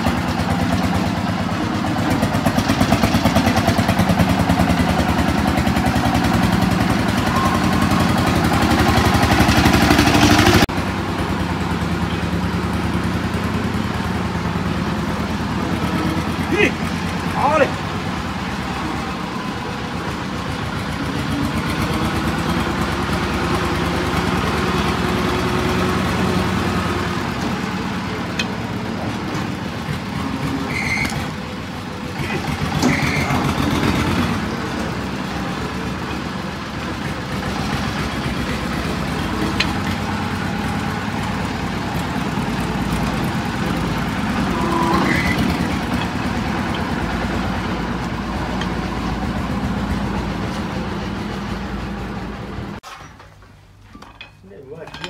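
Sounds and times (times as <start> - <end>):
engine running: 0.0 - 55.0
blade scraping hoof: 32.1 - 34.9, 38.8 - 49.4.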